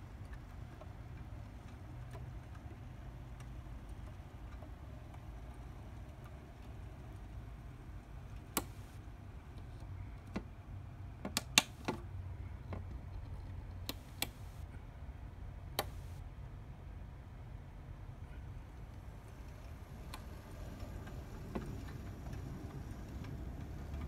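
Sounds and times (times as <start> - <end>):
model train rolling on track: 19.0 - 24.0
wheels clicking over rail joints: 19.1 - 24.0.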